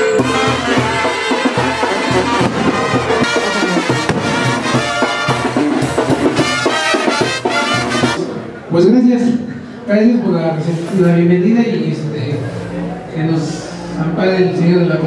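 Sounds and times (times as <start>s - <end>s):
brass band music: 0.0s - 8.5s.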